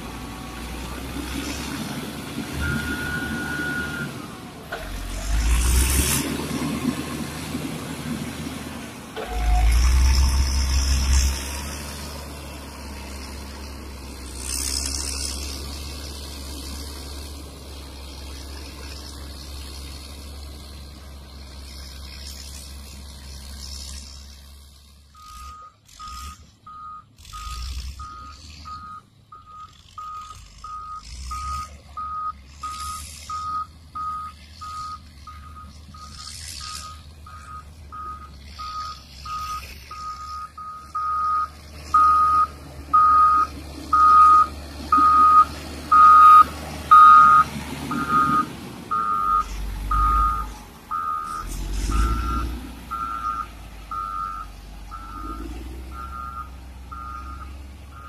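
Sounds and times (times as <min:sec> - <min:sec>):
diesel engine running: 0:00.0 - 0:58.0
reversing alarm beeps: 0:02.6 - 0:04.4, 0:25.2 - 0:58.0.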